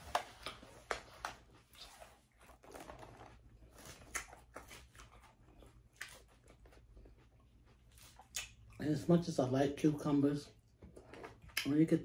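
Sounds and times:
chewing: 1.7s - 9.0s.

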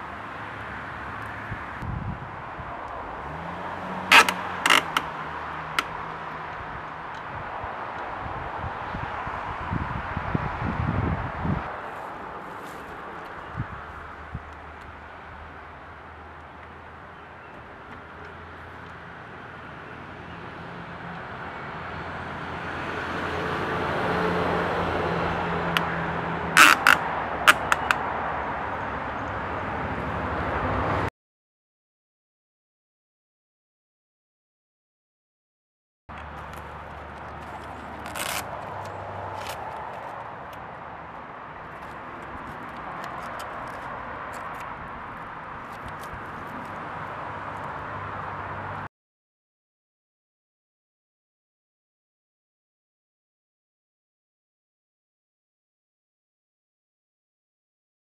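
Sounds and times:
hook-and-loop strap ripping: 4.1s - 6.0s, 26.6s - 28.0s, 36.2s - 40.6s, 41.7s - 46.8s
strap crackles and clicks: 4.1s - 6.0s, 26.6s - 28.0s, 36.1s - 46.8s.

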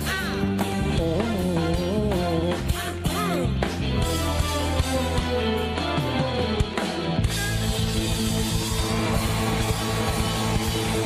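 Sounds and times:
live rock band playing: 0.0s - 11.0s
fast drumming and cymbals: 7.2s - 11.0s.

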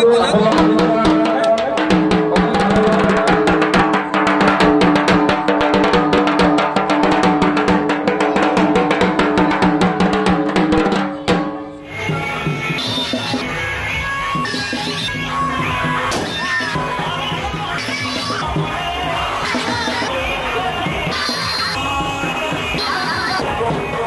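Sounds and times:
fast even drumming: 0.0s - 24.0s
held musical tones: 10.8s - 24.0s.

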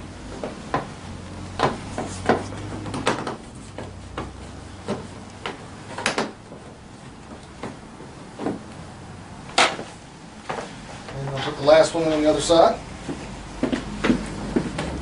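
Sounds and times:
plastic panels clicking and knocking: 1.6s - 6.4s.

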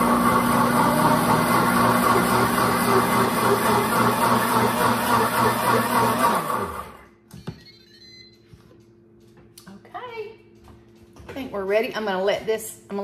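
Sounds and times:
blender motor running: 0.0s - 7.1s.

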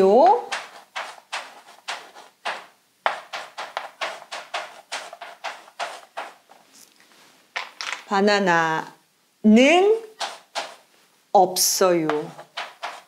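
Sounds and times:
chalk tapping and scraping on blackboard: 0.0s - 6.8s, 10.0s - 10.9s, 12.0s - 13.0s.

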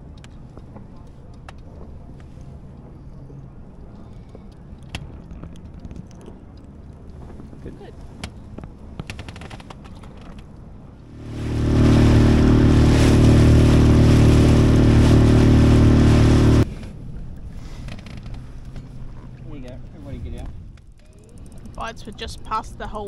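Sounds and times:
boat motor running: 11.1s - 16.6s.

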